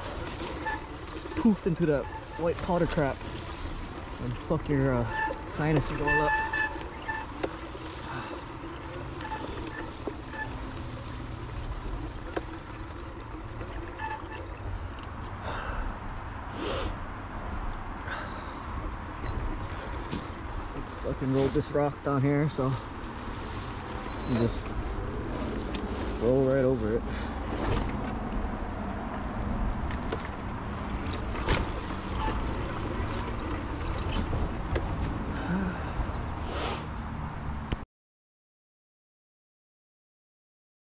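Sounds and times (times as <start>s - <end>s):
bike tyres rolling on dirt: 0.0s - 14.6s.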